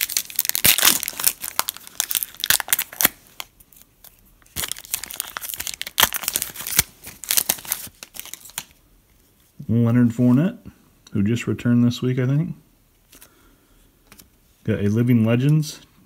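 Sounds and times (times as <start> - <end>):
foil wrapper tearing and crinkling: 0.0 - 8.7.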